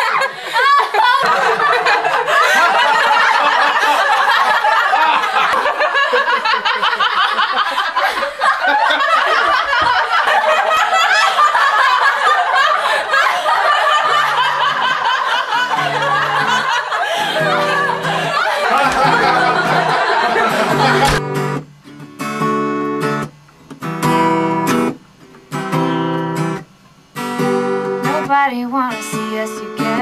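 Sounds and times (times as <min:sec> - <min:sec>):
group of people laughing: 0:00.0 - 0:21.2.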